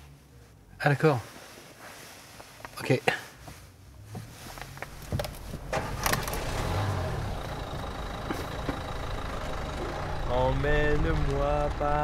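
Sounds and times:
car engine starting and running: 0:03.5 - 0:12.0.

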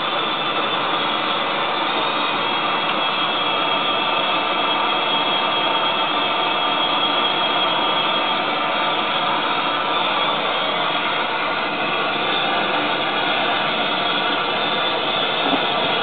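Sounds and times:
propane torch hissing: 0:00.0 - 0:16.0.

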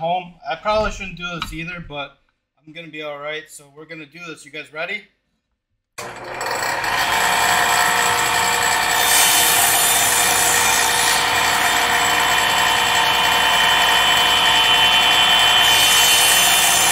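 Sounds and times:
circular saw cutting cardboard: 0:06.0 - 0:16.9.

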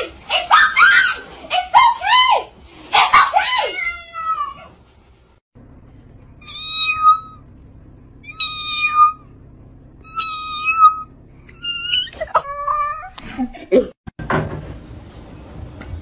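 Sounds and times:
cat meowing: 0:03.7 - 0:04.8, 0:06.4 - 0:07.4, 0:08.2 - 0:09.3, 0:10.0 - 0:13.2.

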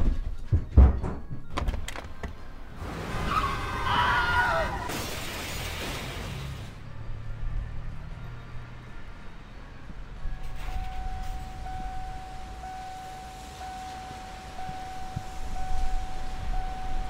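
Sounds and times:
high electronic tone: 0:10.4 - 0:17.0.

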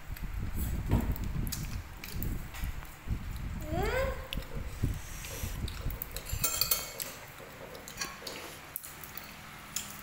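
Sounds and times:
cutlery and dishes clinking: 0:06.0 - 0:10.0.

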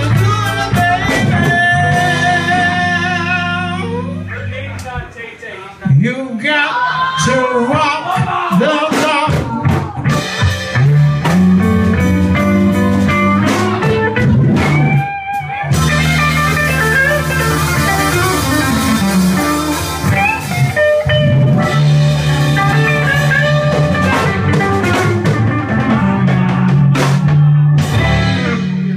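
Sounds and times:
electric guitar bending notes: 0:00.0 - 0:04.9, 0:09.3 - 0:28.9
drum kit with cymbals: 0:00.0 - 0:05.1, 0:08.0 - 0:28.9
bass guitar line: 0:00.0 - 0:06.1, 0:07.2 - 0:28.9
keyboards: 0:00.0 - 0:06.2, 0:07.2 - 0:28.9.

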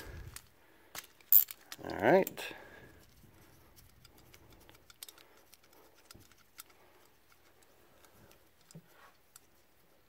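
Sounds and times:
small metal part clicking and tapping: 0:03.9 - 0:09.4.

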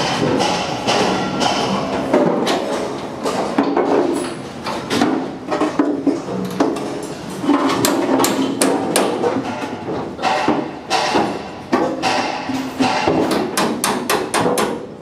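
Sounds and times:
hammer striking metal: 0:00.0 - 0:03.9, 0:07.8 - 0:14.8.

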